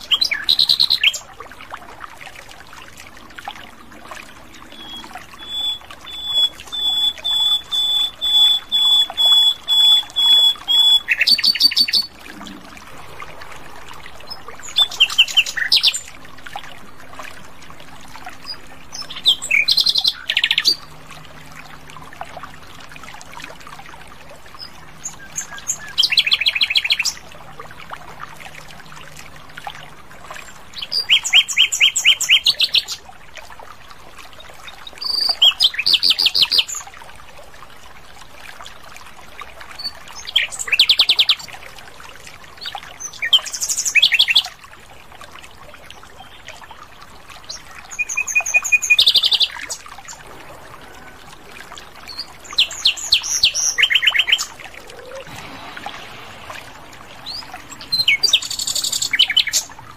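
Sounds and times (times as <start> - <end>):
nightingale singing: 4.8 - 12.1, 57.2 - 59.8
faint steady hiss: 36.7 - 59.9.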